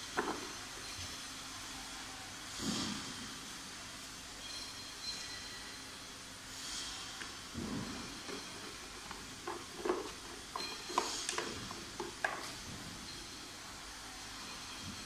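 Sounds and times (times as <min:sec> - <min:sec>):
plastic parts clicking and knocking: 0:00.2 - 0:00.5, 0:08.3 - 0:12.6.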